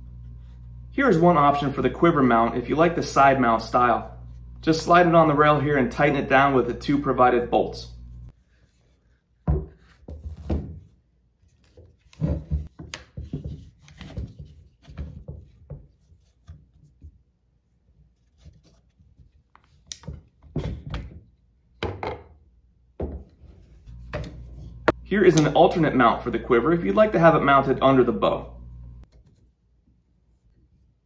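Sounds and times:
crossbow knocking on wooden table: 23.0 - 23.2.

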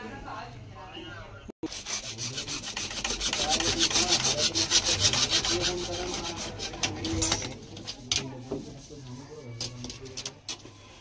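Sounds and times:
hacksaw cutting plastic pipe: 1.6 - 8.9.

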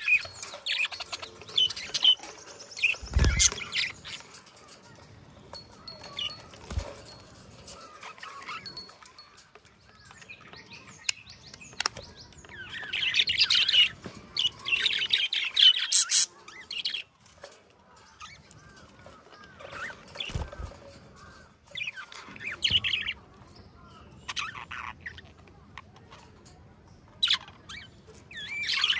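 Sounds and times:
budgerigars chattering and warbling: 0.0 - 4.4, 10.2 - 17.1.

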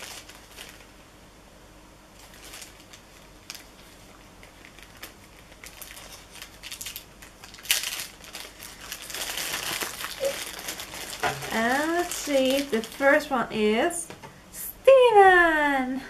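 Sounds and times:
cardboard packaging crinkling: 0.0 - 1.0, 2.2 - 13.4.

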